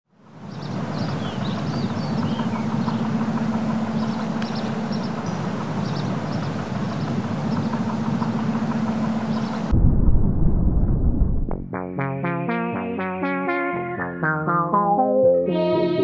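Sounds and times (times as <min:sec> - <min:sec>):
wash of noise: 0:00.2 - 0:09.8
steady low hum: 0:00.3 - 0:11.6
small birds chirping: 0:00.4 - 0:09.7.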